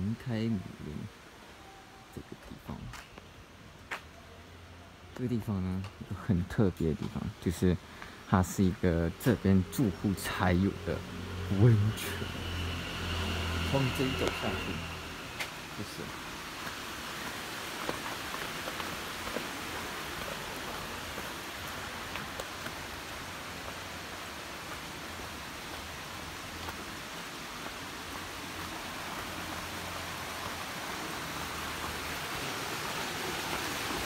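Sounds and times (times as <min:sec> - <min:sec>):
creek water rushing: 0:00.0 - 0:34.0
footsteps on concrete: 0:15.4 - 0:15.6, 0:16.6 - 0:23.9.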